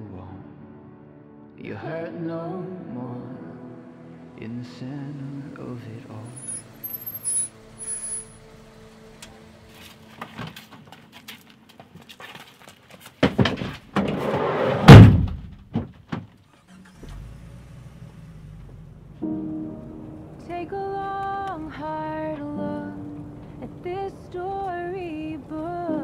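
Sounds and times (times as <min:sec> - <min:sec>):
short high beeps: 0:06.3 - 0:08.4
sliding van door slamming: 0:13.4 - 0:15.8.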